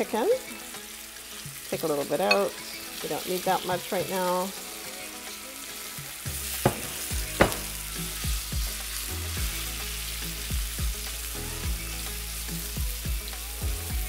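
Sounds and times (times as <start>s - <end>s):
chicken sizzling in oil: 0.0s - 14.0s
soft music with thumping beat: 0.5s - 14.0s
sharp knock: 6.7s - 7.7s.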